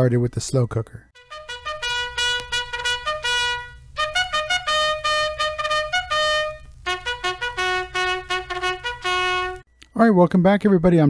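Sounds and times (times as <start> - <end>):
trumpet melody: 1.2 - 9.7.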